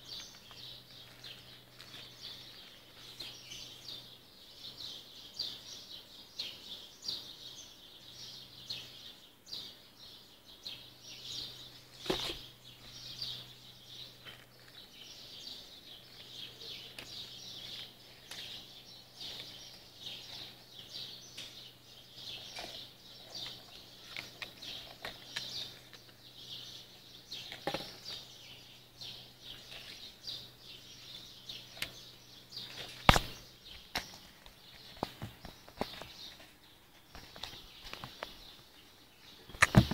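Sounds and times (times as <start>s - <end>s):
small birds chirping: 0.0s - 39.9s.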